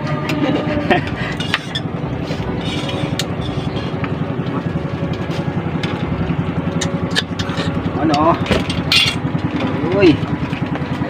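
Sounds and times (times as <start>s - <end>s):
small engine running steadily: 0.0s - 11.0s.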